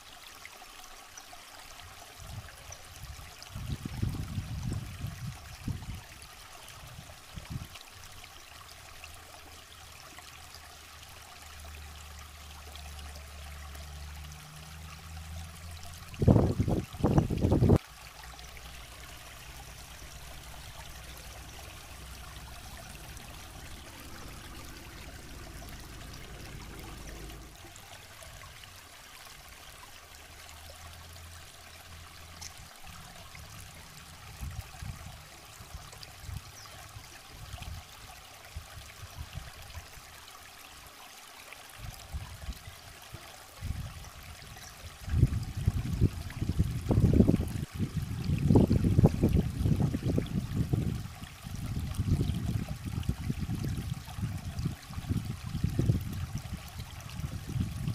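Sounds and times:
river water flowing over rocks: 0:00.0 - 0:57.9
low rumbling bursts: 0:18.8 - 0:28.4.

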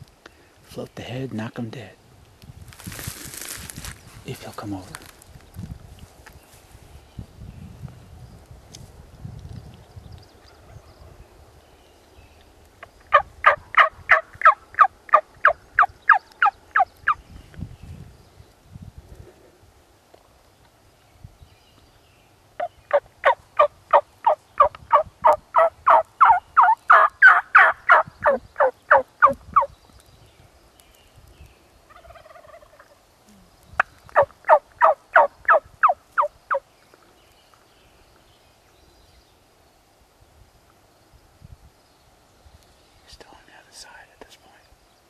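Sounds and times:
wild turkey yelping: 0:13.1 - 0:16.9, 0:22.6 - 0:29.7, 0:31.9 - 0:33.0, 0:34.2 - 0:36.3.

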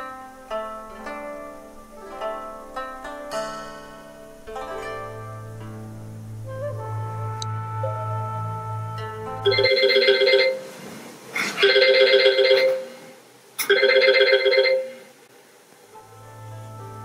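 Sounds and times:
smartphone ringing: 0:09.5 - 0:10.7, 0:11.6 - 0:13.0, 0:13.6 - 0:15.1.

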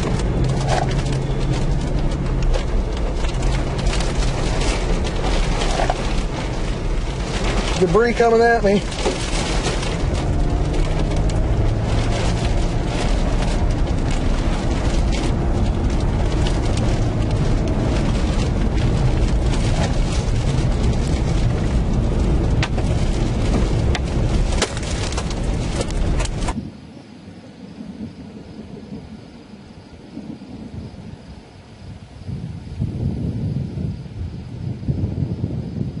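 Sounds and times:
debris hitting vehicle: 0:00.0 - 0:26.6
tornado wind rushing: 0:00.0 - 0:36.0.

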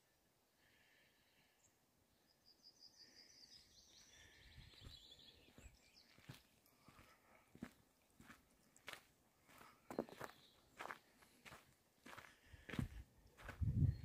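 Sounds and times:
faint distant birdsong: 0:00.0 - 0:14.0
soft footsteps: 0:04.8 - 0:13.9.

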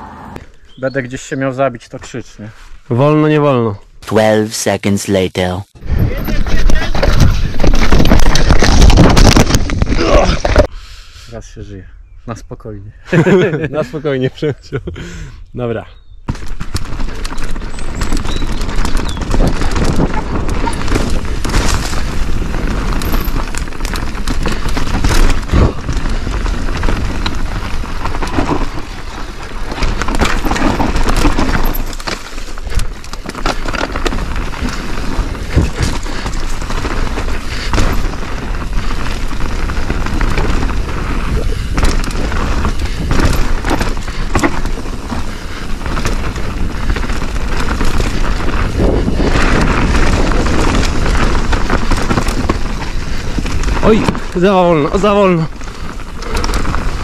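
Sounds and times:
mountain bike clattering: 0:06.1 - 0:10.7, 0:16.3 - 0:57.0
sharp knocks over roots: 0:06.6 - 0:10.7
wind buffeting microphone: 0:34.1 - 0:57.0.

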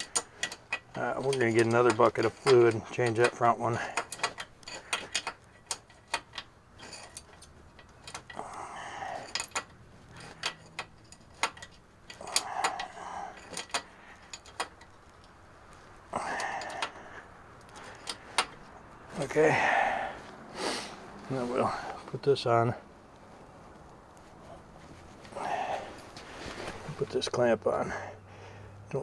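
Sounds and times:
wrench metal clicks: 0:00.0 - 0:15.4, 0:16.3 - 0:18.7
soft rustles: 0:12.8 - 0:27.8.

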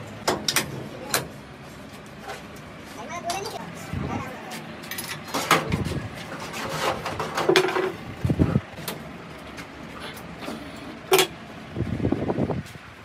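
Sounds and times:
hand tools clinking on metal: 0:04.8 - 0:05.7.

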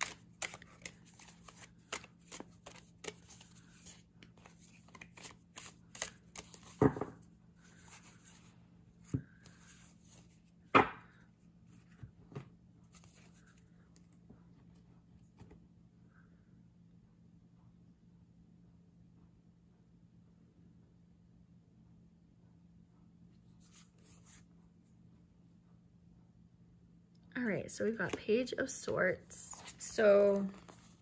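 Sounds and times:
cards being shuffled: 0:00.0 - 0:08.5, 0:11.8 - 0:14.1, 0:29.4 - 0:31.0.

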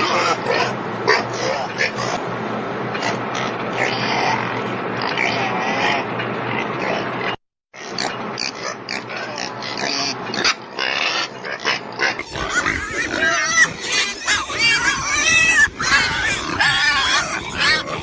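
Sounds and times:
pigs grunting: 0:00.0 - 0:02.2, 0:02.9 - 0:18.0.

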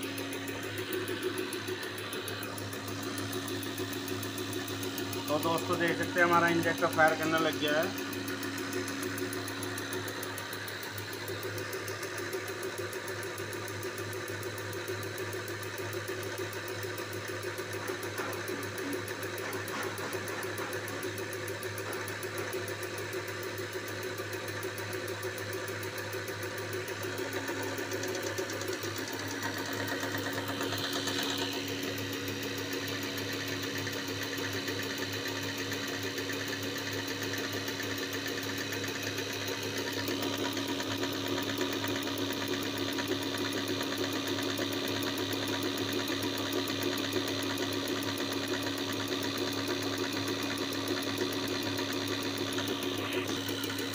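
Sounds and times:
machine hum: 0:00.0 - 0:13.0, 0:26.9 - 0:44.0, 0:51.8 - 0:53.9
fast mechanical ticking: 0:00.0 - 0:53.9.

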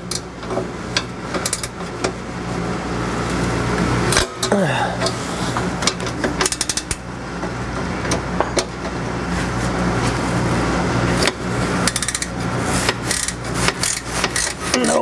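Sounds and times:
steady low hum: 0:00.0 - 0:15.0
ratchet metal clicks and clanks: 0:01.0 - 0:01.8, 0:05.8 - 0:07.0, 0:11.2 - 0:15.0.

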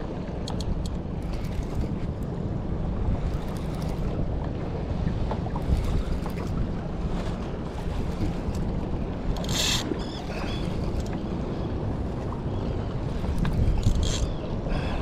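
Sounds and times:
sea water around boat: 0:00.0 - 0:15.0
wind buffeting microphone: 0:00.0 - 0:15.0
fishing reel clicks: 0:09.4 - 0:09.9.

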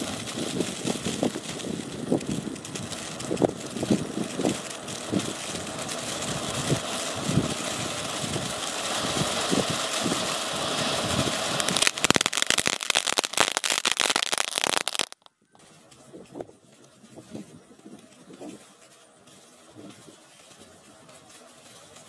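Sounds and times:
firework pops: 0:00.0 - 0:15.3
rapid firework crackling: 0:00.0 - 0:15.3
firework fountain hissing: 0:00.0 - 0:15.9, 0:17.2 - 0:22.0.

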